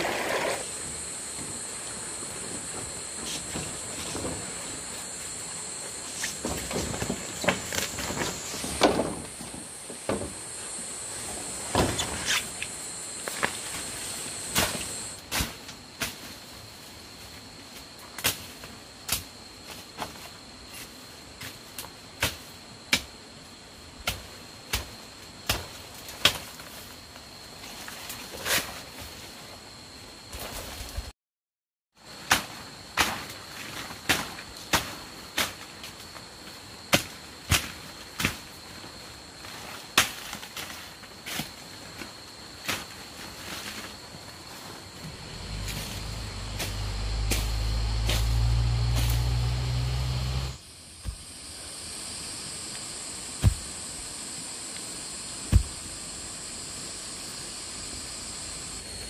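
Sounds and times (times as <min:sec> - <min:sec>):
high insect drone: 0:00.0 - 0:31.1, 0:32.0 - 0:59.0
blade chopping undergrowth: 0:45.0 - 0:51.3, 0:53.4 - 0:53.8, 0:55.4 - 0:56.0.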